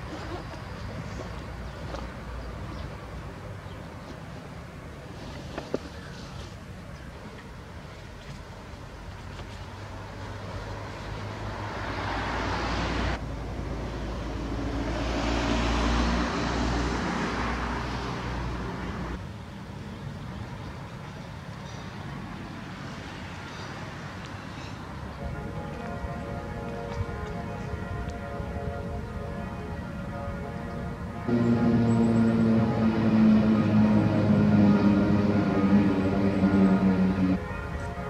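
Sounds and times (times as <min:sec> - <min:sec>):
background traffic noise: 0:00.0 - 0:38.0
car passing: 0:09.8 - 0:19.2, 0:22.2 - 0:38.0.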